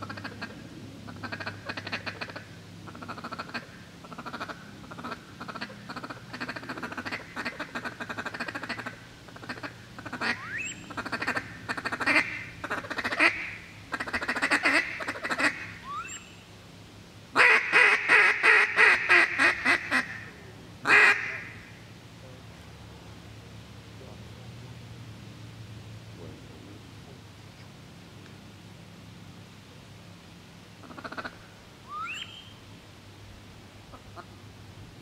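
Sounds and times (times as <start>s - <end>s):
duck squeals: 0.0s - 16.3s, 30.8s - 32.5s
ducks quacking: 0.0s - 16.3s, 17.4s - 21.8s, 30.8s - 32.3s.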